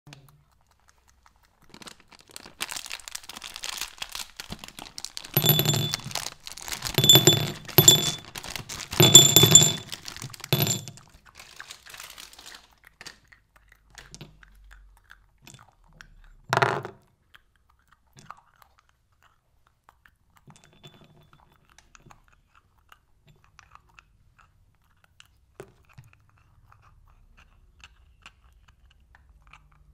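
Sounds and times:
candy packet crinkling: 1.3 - 5.4, 6.0 - 7.0, 7.7 - 9.0, 9.9 - 10.6, 11.2 - 13.2
candies clattering into ceramic bowl: 2.6 - 12.6.

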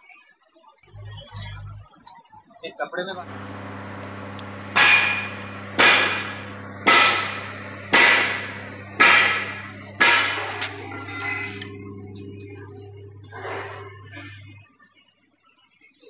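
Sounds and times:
steady low hum: 3.2 - 14.6
metal-on-metal strikes: 4.2 - 14.1.

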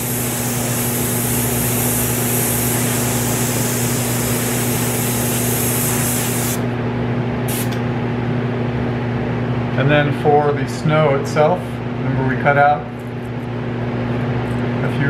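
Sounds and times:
airbrush spraying hiss: 0.0 - 6.6.

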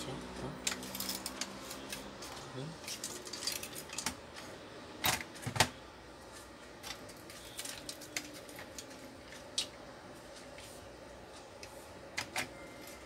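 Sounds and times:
printer parts clicking and clacking: 0.6 - 5.8, 12.1 - 13.0.

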